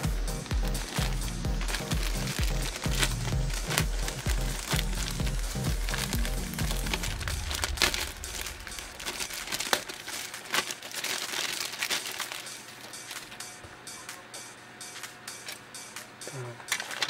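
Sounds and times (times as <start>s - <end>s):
background music: 0.0s - 10.1s, 12.1s - 17.0s
plastic bag crinkling: 0.6s - 13.5s, 16.7s - 17.0s.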